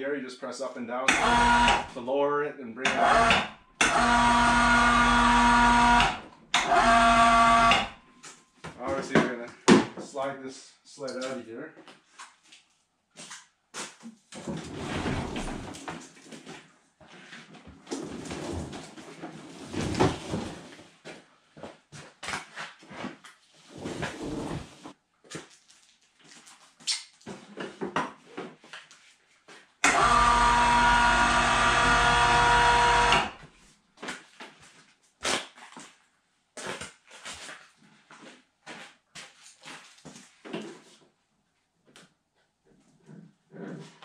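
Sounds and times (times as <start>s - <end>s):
electric winch motor hum: 1.1s - 1.9s, 2.9s - 8.0s, 29.8s - 33.4s.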